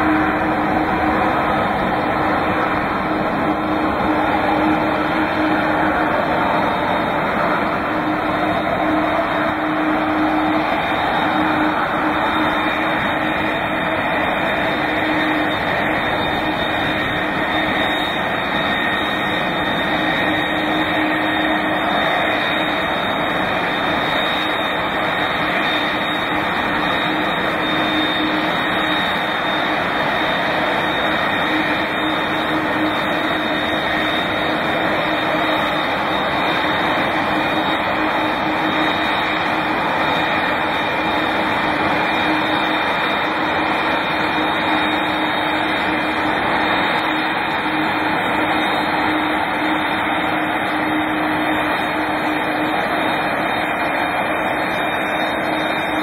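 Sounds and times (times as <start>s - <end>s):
jet engines running: 0.0s - 56.0s.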